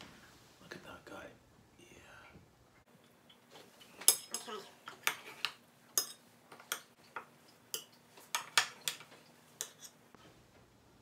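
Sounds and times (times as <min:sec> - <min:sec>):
metal spoon scraping muffin tin: 0:07.8 - 0:10.0.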